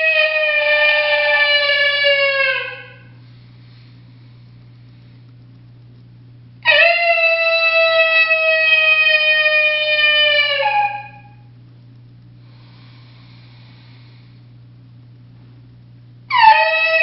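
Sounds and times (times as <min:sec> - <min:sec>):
coyote howler call: 0:00.0 - 0:03.2, 0:06.6 - 0:11.5, 0:16.3 - 0:17.0.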